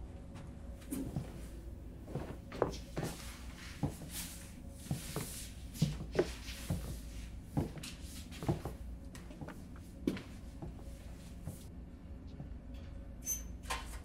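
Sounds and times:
low steady hum: 0:00.0 - 0:14.0
footsteps: 0:00.8 - 0:11.7.

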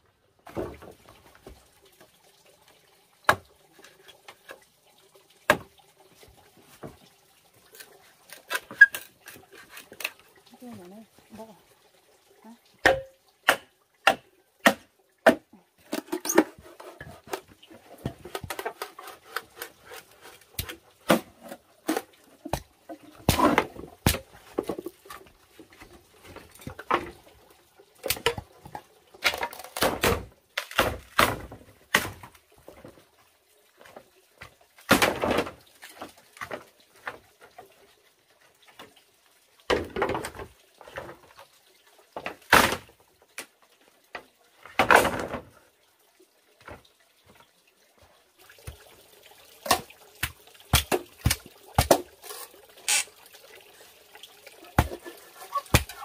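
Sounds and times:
bamboo halves clattering together: 0:12.8 - 0:27.2, 0:28.0 - 0:32.4, 0:44.7 - 0:45.5, 0:54.8 - 0:56.0.

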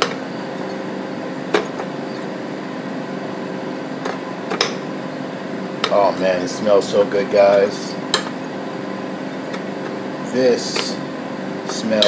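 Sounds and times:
appliance fan hum: 0:00.0 - 0:12.0.

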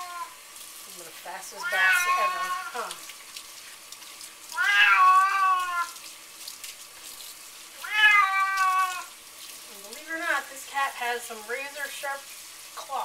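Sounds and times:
cat meowing: 0:00.0 - 0:00.4, 0:01.6 - 0:02.9, 0:04.5 - 0:06.0, 0:07.8 - 0:09.2.

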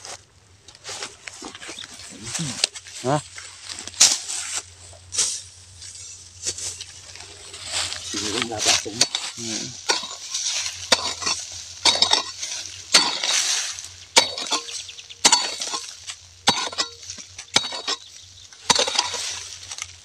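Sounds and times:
soil clods crumbling: 0:00.8 - 0:20.0
pick mattock striking soil: 0:08.2 - 0:20.0.

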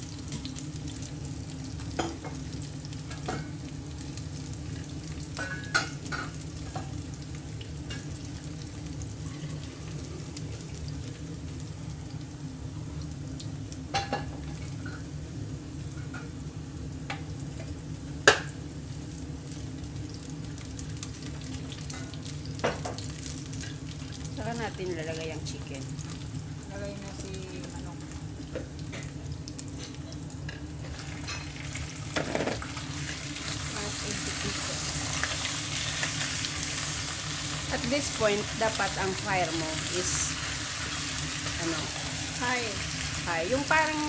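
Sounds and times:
garlic and ginger sizzling in oil: 0:00.0 - 0:44.0.

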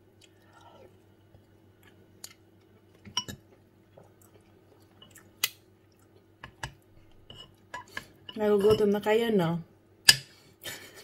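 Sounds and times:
soft chewing: 0:00.0 - 0:08.2
cutlery clinking on ceramic: 0:03.1 - 0:03.4.

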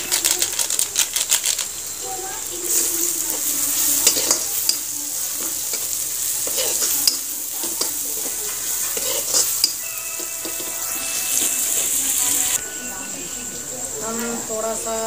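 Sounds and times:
masala sizzling in a pan: 0:00.0 - 0:15.0
metal spatula scraping a pan: 0:02.7 - 0:12.7.

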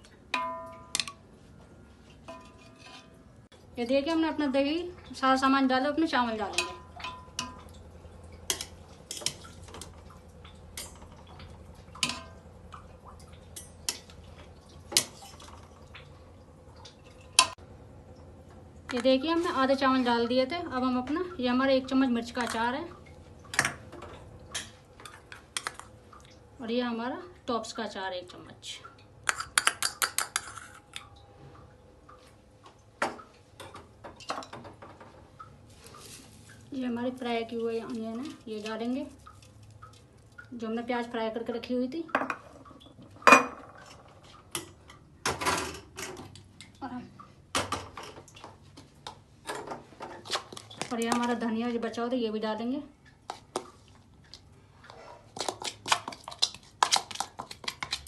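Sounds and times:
metal spoon clinking on a pot: 0:00.4 - 0:01.2, 0:06.5 - 0:07.7, 0:12.0 - 0:12.4.

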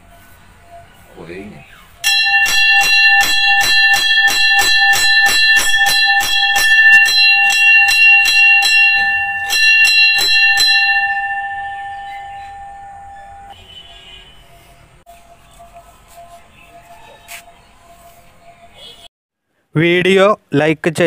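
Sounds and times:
bell rung rapidly: 0:02.0 - 0:13.6.

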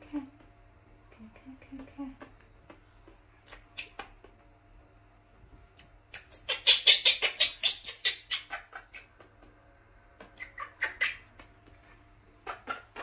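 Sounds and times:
baby monkey squealing: 0:06.1 - 0:09.2, 0:10.2 - 0:11.5, 0:12.4 - 0:13.0.

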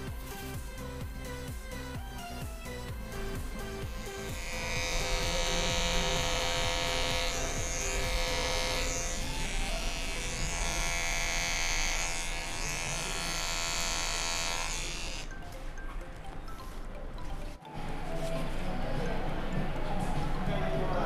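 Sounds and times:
electric hair clipper buzzing: 0:03.1 - 0:15.3.

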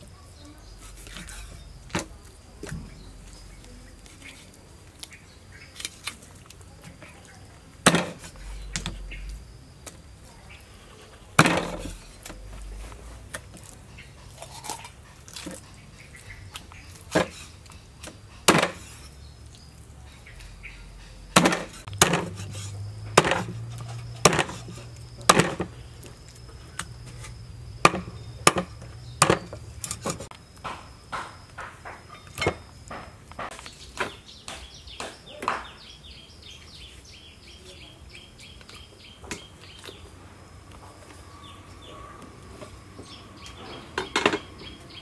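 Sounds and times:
cleaver chopping through bone: 0:18.0 - 0:19.0, 0:21.3 - 0:25.7, 0:26.8 - 0:31.7.

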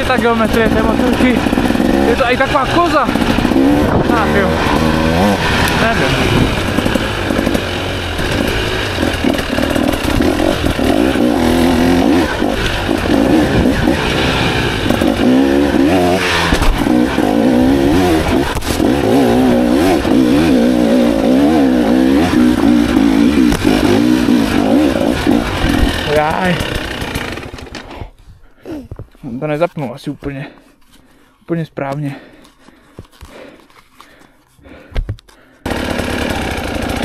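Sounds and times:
two-stroke engine revving: 0:00.0 - 0:27.9, 0:35.6 - 0:37.0.

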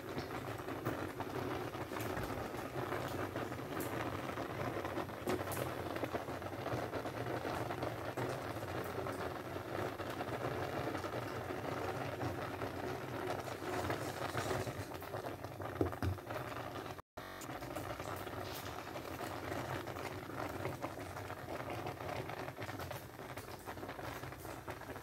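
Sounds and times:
soup boiling and bubbling: 0:00.0 - 0:25.0
knock: 0:15.8 - 0:16.2.

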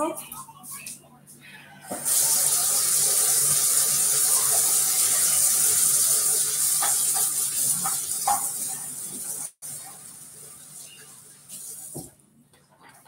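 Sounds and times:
water running from sink tap: 0:01.9 - 0:12.1.

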